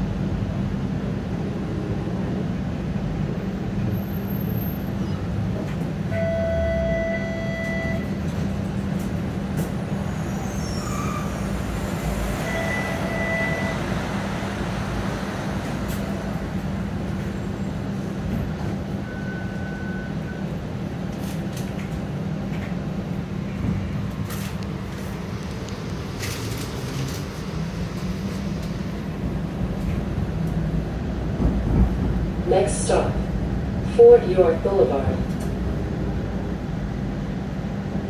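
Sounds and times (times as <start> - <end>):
streetcar rumble and hum: 0.0 - 38.0.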